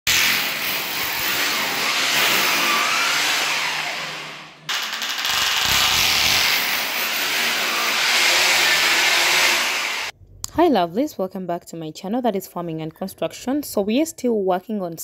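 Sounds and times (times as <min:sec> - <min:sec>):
electric drill boring into tile: 0:00.1 - 0:10.1.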